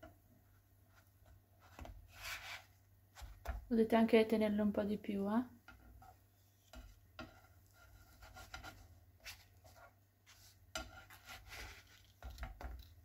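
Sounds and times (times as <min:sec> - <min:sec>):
spatula scraping nonstick pan: 0:05.7 - 0:13.0.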